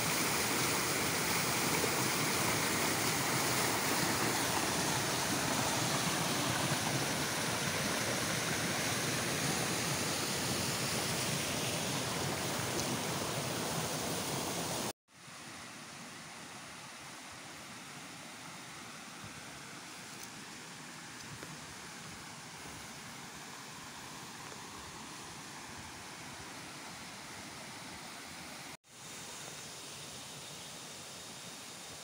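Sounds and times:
waterfall rushing over rocks: 0:00.0 - 0:14.9
steady hiss: 0:00.0 - 0:32.0.

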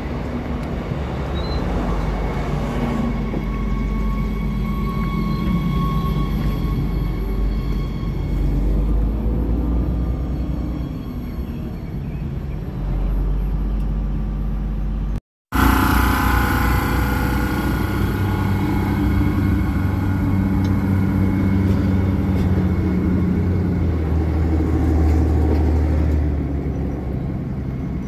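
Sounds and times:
rail noise: 0:00.0 - 0:28.0
railcar engine drone: 0:00.0 - 0:28.0
brief high whine: 0:15.5 - 0:23.0.

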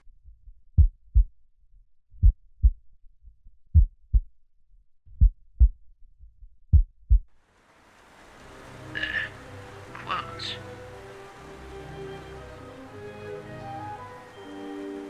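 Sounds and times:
heartbeat double thumps: 0:00.0 - 0:01.4, 0:02.1 - 0:04.4, 0:05.1 - 0:07.3.

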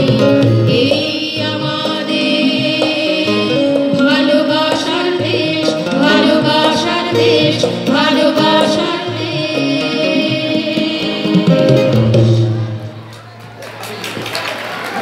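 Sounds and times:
group of women singing: 0:00.0 - 0:12.6.

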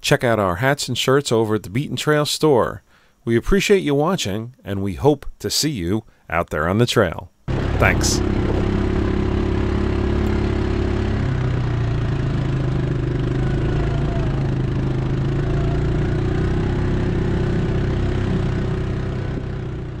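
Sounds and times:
atv engine running: 0:07.5 - 0:20.0.

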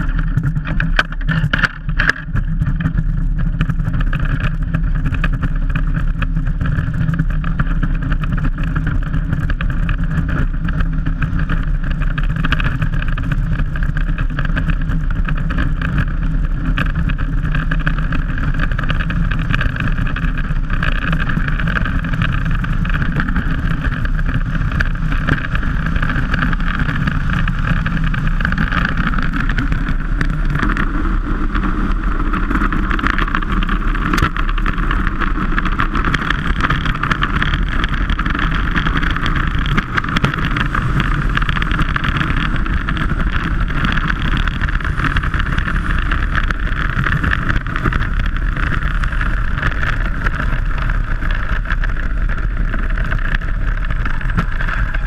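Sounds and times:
bobsleigh runners on ice: 0:00.0 - 0:55.0.

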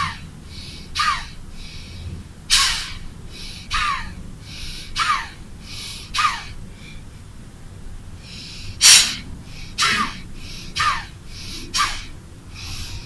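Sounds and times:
soft inhale: 0:00.4 - 0:03.8, 0:04.4 - 0:07.3, 0:08.1 - 0:11.9, 0:12.5 - 0:13.0
forceful nasal exhalations: 0:08.2 - 0:13.0.

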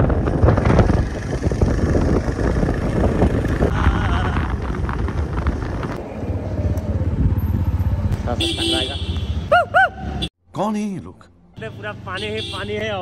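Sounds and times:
wind rushing over microphone: 0:00.0 - 0:07.8
motorcycle engine: 0:00.0 - 0:10.3
road noise: 0:00.0 - 0:13.0.

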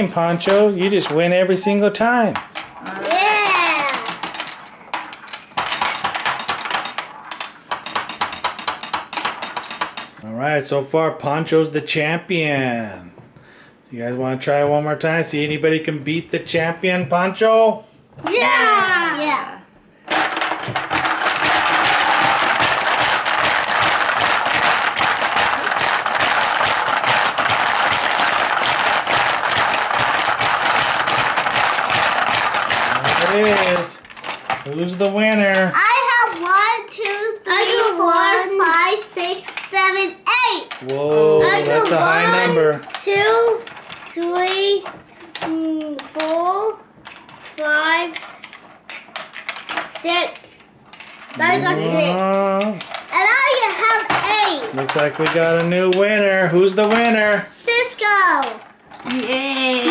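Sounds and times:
marbles rattling on board: 0:00.0 - 0:10.2, 0:20.1 - 0:59.9
plastic hippo heads clacking: 0:02.3 - 0:10.2, 0:20.1 - 0:50.1
plastic hippos chomping: 0:21.0 - 0:35.3.

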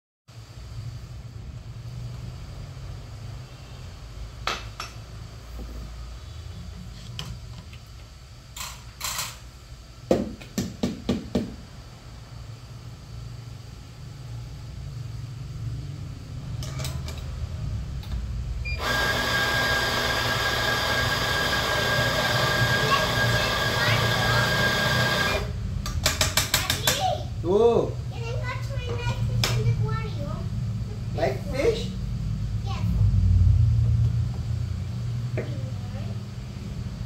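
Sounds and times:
coffee grinder whirring: 0:18.7 - 0:25.6
low steady hum: 0:27.1 - 0:37.0.

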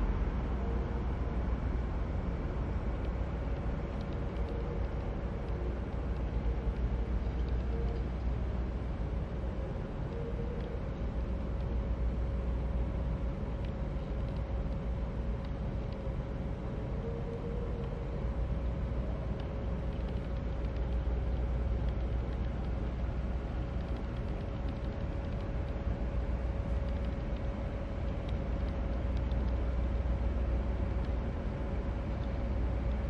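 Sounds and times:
low background rumble: 0:00.0 - 0:33.0
thin constant hum: 0:00.0 - 0:33.0
faint ticks: 0:02.9 - 0:08.4, 0:10.1 - 0:11.8, 0:13.6 - 0:16.1, 0:18.6 - 0:25.9, 0:26.7 - 0:30.1, 0:30.8 - 0:31.2, 0:32.1 - 0:33.0.

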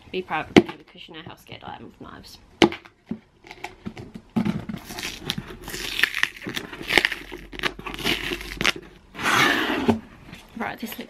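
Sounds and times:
packing tape ripping: 0:04.8 - 0:09.0.

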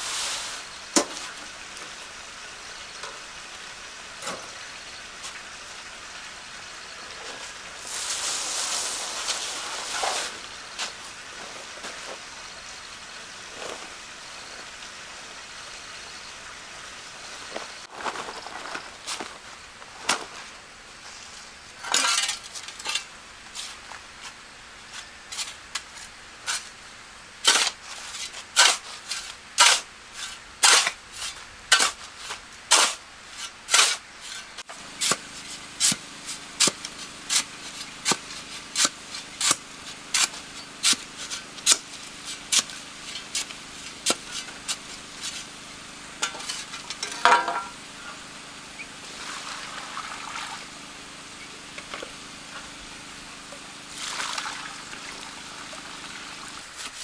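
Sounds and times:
faint steady hum: 0:00.0 - 0:57.0
trowel scraping mortar: 0:27.4 - 0:45.5, 0:46.2 - 0:47.7, 0:56.6 - 0:57.0.

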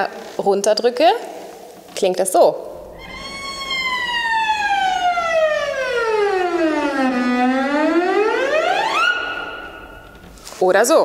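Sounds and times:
cello glissando: 0:02.7 - 0:10.3.

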